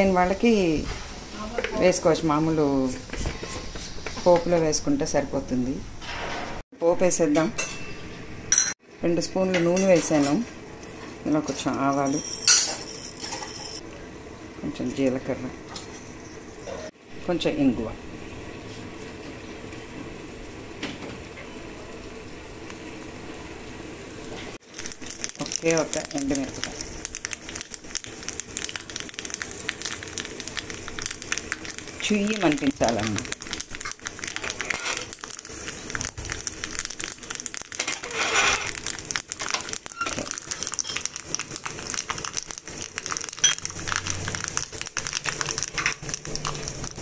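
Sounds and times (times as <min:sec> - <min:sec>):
oil sizzling in a pan: 0:15.8 - 0:47.0
seeds popping: 0:24.6 - 0:47.0.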